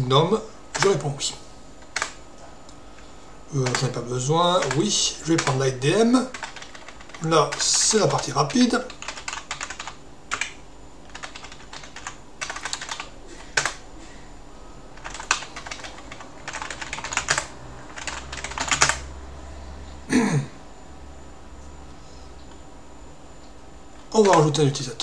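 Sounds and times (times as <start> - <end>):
typing on computer keyboard: 1.8 - 2.2, 3.6 - 3.9, 4.6 - 5.6, 6.3 - 13.8, 15.0 - 19.1, 24.2 - 24.6.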